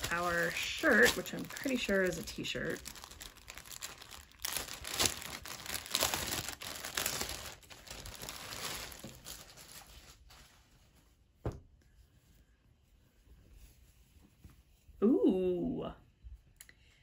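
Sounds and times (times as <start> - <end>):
packaging crinkling and tearing: 0.0 - 10.5.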